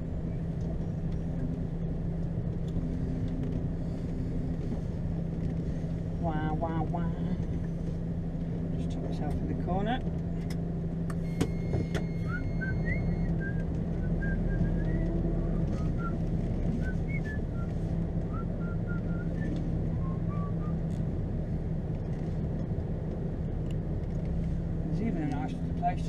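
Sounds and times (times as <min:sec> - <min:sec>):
diesel engine idling: 0:00.0 - 0:22.1
person whistling a tune: 0:12.2 - 0:15.2.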